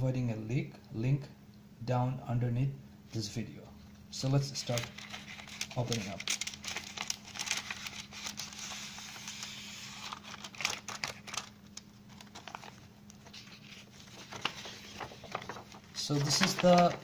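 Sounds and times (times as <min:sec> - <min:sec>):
paper tearing and rustling: 0:04.6 - 0:17.0.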